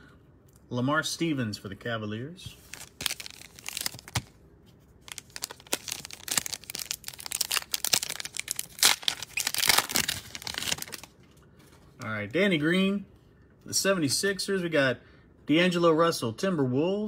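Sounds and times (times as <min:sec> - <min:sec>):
foil wrapper crinkling and tearing: 0:02.6 - 0:04.3, 0:05.0 - 0:11.1.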